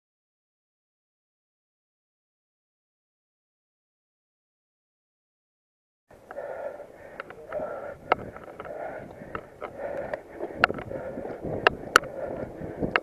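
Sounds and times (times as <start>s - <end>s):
wind and tyre noise: 6.1s - 13.0s
bike clicks and knocks: 7.1s - 13.0s.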